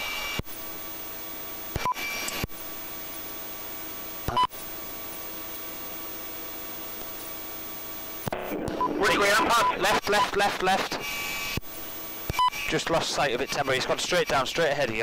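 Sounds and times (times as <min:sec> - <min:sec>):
radio channel hiss: 0:00.0 - 0:15.0.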